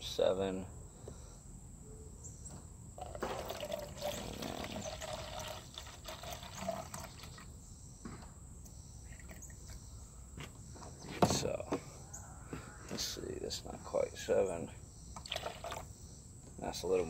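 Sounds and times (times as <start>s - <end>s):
liquid pouring into plastic cup: 3.0s - 7.5s, 9.1s - 9.7s, 15.2s - 15.9s.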